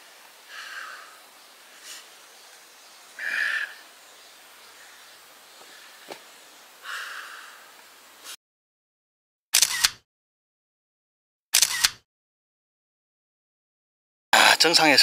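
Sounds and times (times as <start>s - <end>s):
person breathing heavily: 0.4s - 2.3s, 3.2s - 3.8s, 5.6s - 6.2s, 6.8s - 7.8s.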